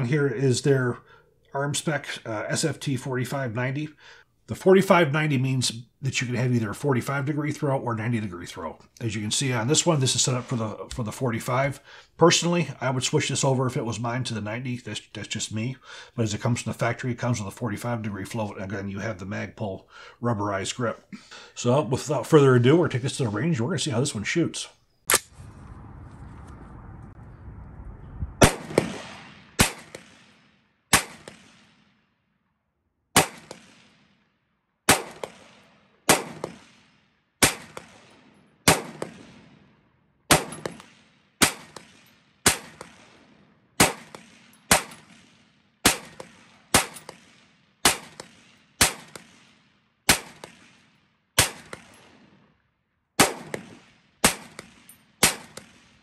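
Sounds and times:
rifle shots with echo: 28.4 - 32.1, 33.1 - 52.6, 53.2 - 56.0.

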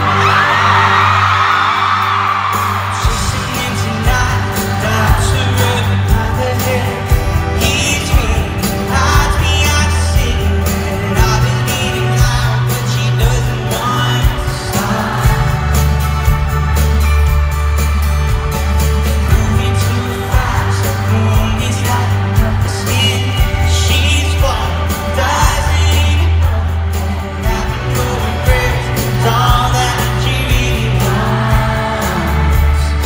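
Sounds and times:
person singing: 0.0 - 16.9, 18.4 - 33.0
bass: 0.0 - 33.0
steady drum beat: 0.0 - 33.0
strummed acoustic guitar: 0.0 - 33.0.

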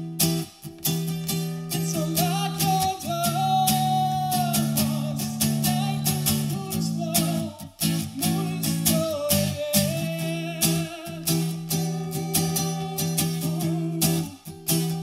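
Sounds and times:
acoustic guitar strumming: 0.0 - 15.0
man singing: 1.7 - 15.0.

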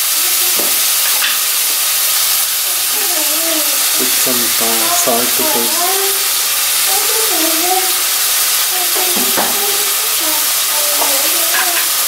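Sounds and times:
chicken sizzling in a pan: 0.0 - 12.0
spoon knocking on pan: 0.5 - 1.5, 8.9 - 9.8, 11.0 - 12.0.

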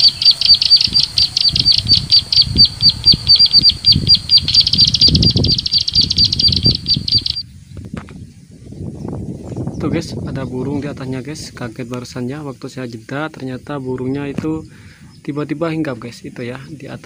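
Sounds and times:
recorded bird chip notes: 0.0 - 8.4
wind rumble on microphone: 0.0 - 17.0.

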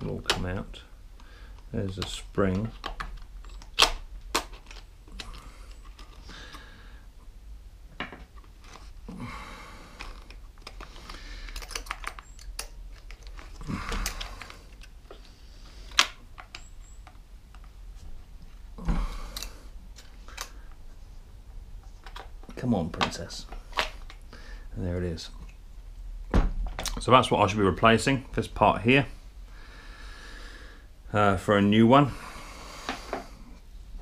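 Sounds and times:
sharp clicks of small parts: 10.0 - 15.0, 19.3 - 20.6.

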